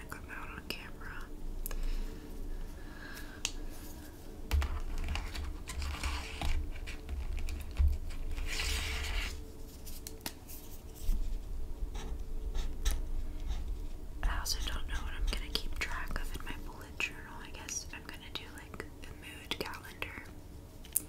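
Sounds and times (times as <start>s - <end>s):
marker scratching on paper: 12.0s - 13.6s.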